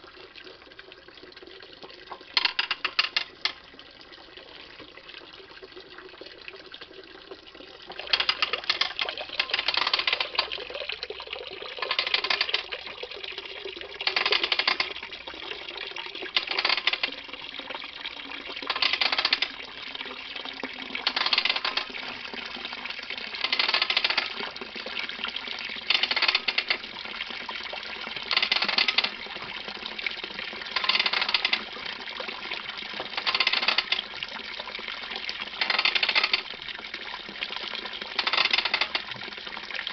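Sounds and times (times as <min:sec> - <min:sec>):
juice running into a tub: 0:00.0 - 0:39.9
ratchet clicking: 0:02.4 - 0:03.6, 0:08.1 - 0:10.5, 0:11.8 - 0:12.7, 0:14.1 - 0:15.0, 0:16.4 - 0:17.2, 0:18.7 - 0:19.6, 0:21.0 - 0:21.9, 0:23.4 - 0:24.4, 0:25.9 - 0:26.8, 0:28.3 - 0:29.2, 0:30.8 - 0:31.7, 0:33.2 - 0:34.0, 0:35.6 - 0:36.5, 0:38.2 - 0:39.1.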